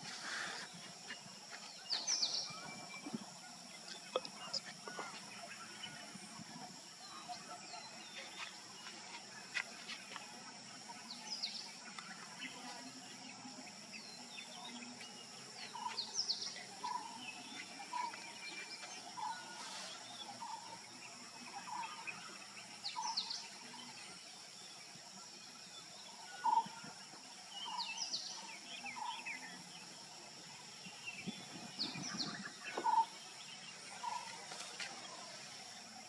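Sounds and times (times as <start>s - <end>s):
insect hum: 0.0s - 36.0s
birds chirping and whistling: 30.9s - 35.2s.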